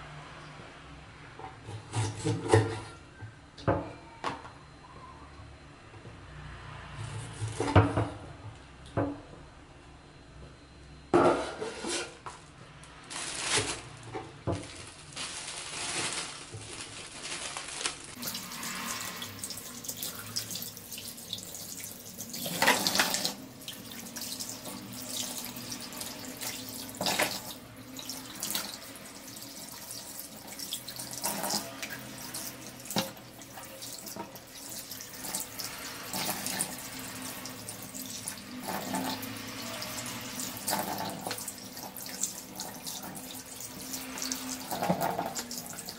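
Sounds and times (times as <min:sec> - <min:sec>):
tap water running into sink: 0:18.2 - 0:45.9
water splashing: 0:18.2 - 0:45.9.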